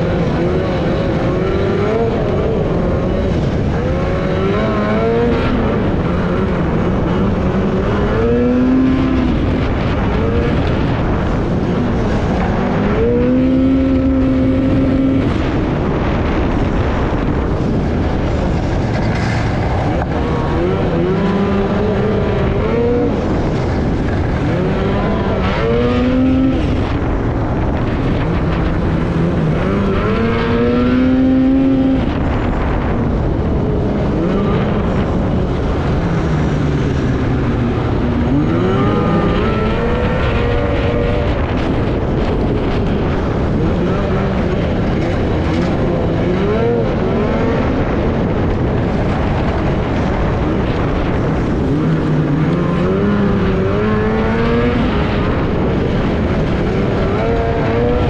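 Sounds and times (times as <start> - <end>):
snowmobile engine revving: 0.0 - 58.0
track and wind rush: 0.0 - 58.0.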